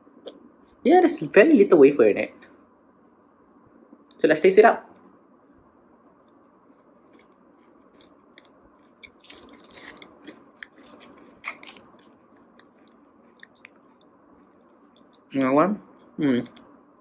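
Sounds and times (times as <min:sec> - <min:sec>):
person chewing chocolate: 0:07.0 - 0:15.3
mouth clicks: 0:08.0 - 0:15.3.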